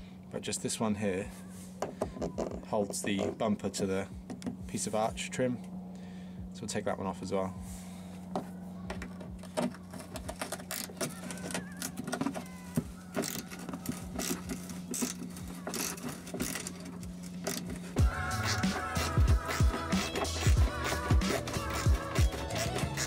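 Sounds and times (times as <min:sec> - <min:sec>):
low steady hum: 0:00.0 - 0:23.0
ratchet wrench clicking: 0:13.2 - 0:17.7.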